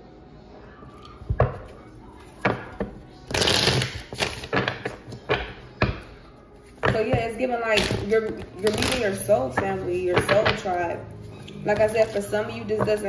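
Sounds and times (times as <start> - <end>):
cards tapping and clicking: 2.4 - 6.1.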